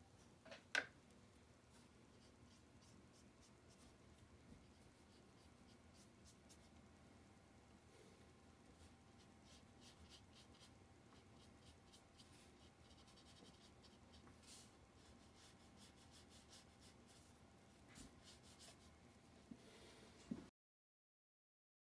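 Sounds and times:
brush scratching on paper: 1.7s - 4.0s, 4.6s - 6.8s, 8.7s - 19.5s.

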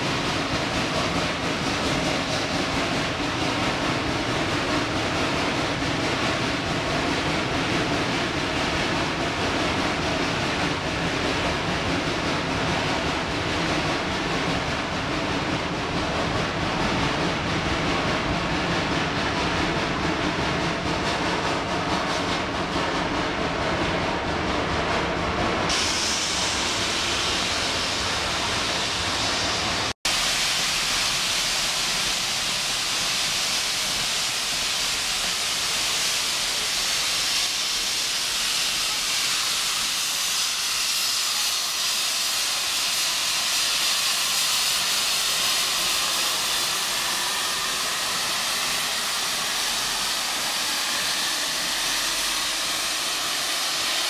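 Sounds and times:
train rolling past: 0.0s - 54.0s
steam safety valve hissing: 25.7s - 54.0s.

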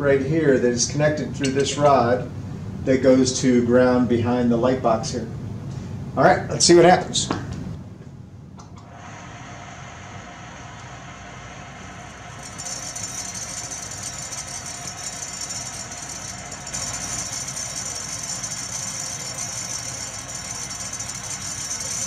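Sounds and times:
generator motor and belt hissing: 8.6s - 22.0s.

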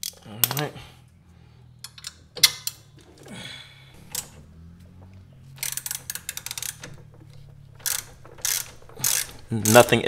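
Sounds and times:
ratchet wrench clicking: 0.0s - 0.6s, 5.6s - 7.0s, 7.8s - 10.0s.

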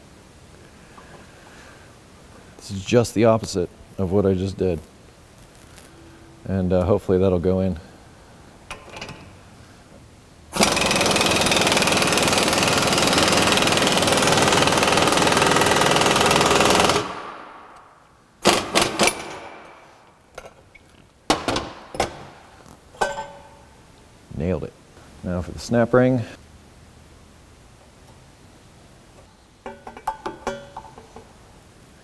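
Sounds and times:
air impact wrench hammering: 10.5s - 17.8s, 18.4s - 19.7s
metal clanks: 23.0s - 23.7s, 29.6s - 31.4s.

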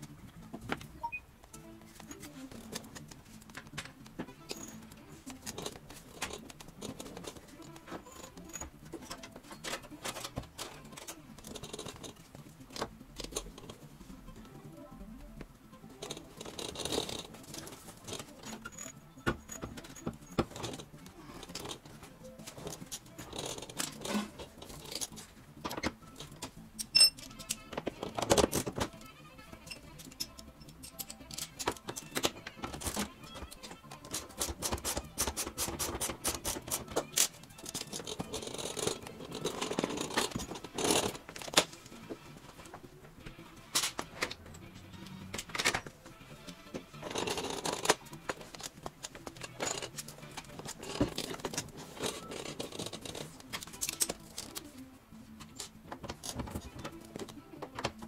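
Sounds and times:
background music: 0.0s - 58.0s
hand tools clinking on metal: 4.4s - 12.2s, 16.0s - 21.8s, 26.8s - 41.6s.

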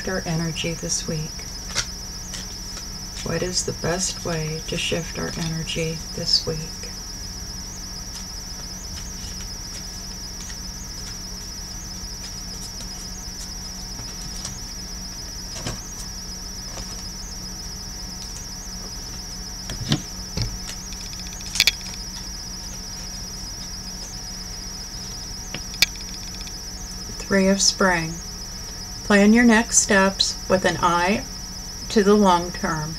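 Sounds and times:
crickets chirping: 0.0s - 32.9s
short knocks and clicks: 20.9s - 22.0s, 25.8s - 26.5s.

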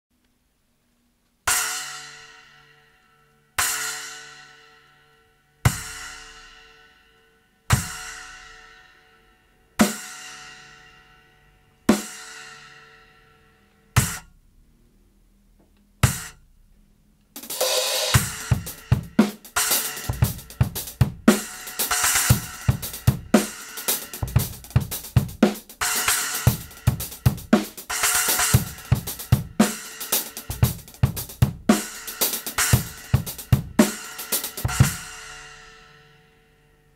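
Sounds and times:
drum kit groove: 5.7s - 6.7s, 7.7s - 8.7s, 9.8s - 10.4s, 11.9s - 12.8s, 14.0s - 14.4s, 16.0s - 16.7s, 17.4s - 36.0s
splash cymbal crashing: 17.5s - 18.9s.

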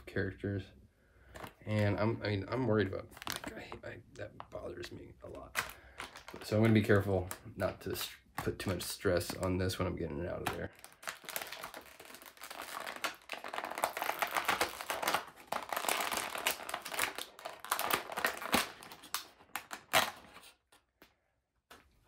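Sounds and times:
plastic packaging crinkling: 2.7s - 3.8s, 4.6s - 20.8s.

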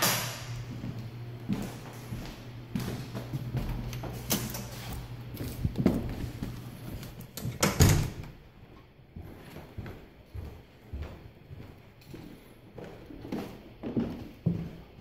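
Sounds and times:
low steady hum: 0.0s - 13.2s
door closing with heavy thud: 7.5s - 8.4s.

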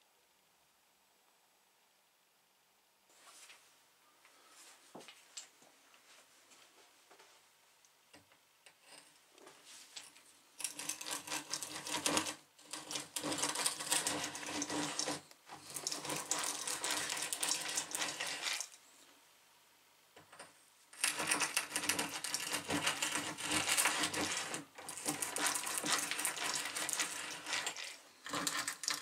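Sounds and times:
hand drill gears whirring and rattling: 10.6s - 18.8s, 21.0s - 29.0s.

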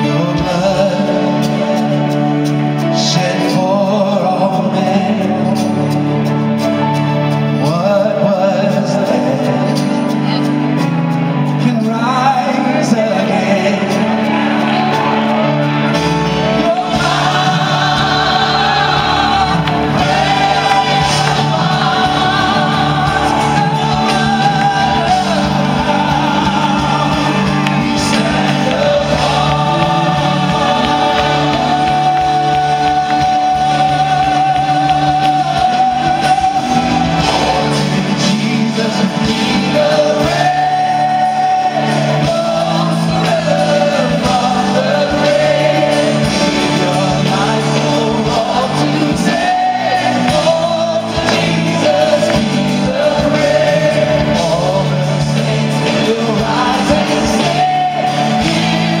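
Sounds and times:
singers with band: 0.0s - 59.0s.

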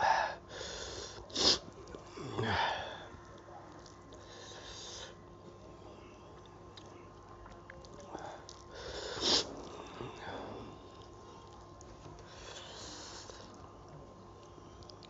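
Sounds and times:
hissing breaths: 0.0s - 3.2s, 4.2s - 5.2s, 8.1s - 11.0s, 12.2s - 13.6s
man sniffing: 8.8s - 9.5s.

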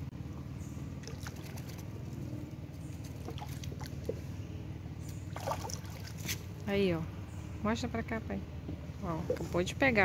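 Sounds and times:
steady low hum: 0.0s - 10.0s
water splashing and dripping: 1.0s - 1.9s, 3.0s - 4.2s, 5.3s - 6.6s.

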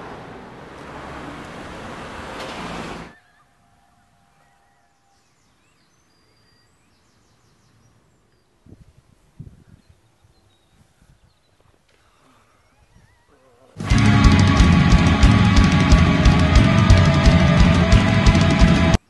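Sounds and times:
road traffic noise: 0.0s - 3.2s, 13.8s - 19.0s
faint bird chirps: 3.1s - 8.8s, 9.4s - 13.8s.

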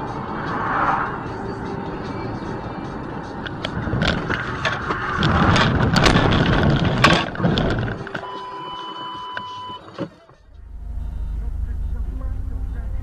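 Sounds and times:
steady electronic beep: 8.2s - 9.8s, 10.6s - 13.0s.

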